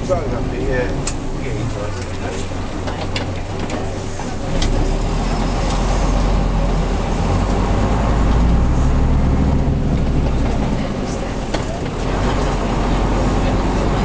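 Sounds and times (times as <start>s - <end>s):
bus diesel engine running: 0.0s - 14.0s.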